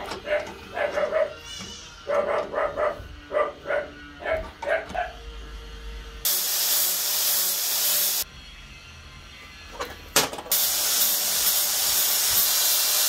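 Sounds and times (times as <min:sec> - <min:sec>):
dog barking: 0:00.2 - 0:01.4, 0:02.1 - 0:05.2
loud steady hiss: 0:06.3 - 0:08.2, 0:10.5 - 0:13.0.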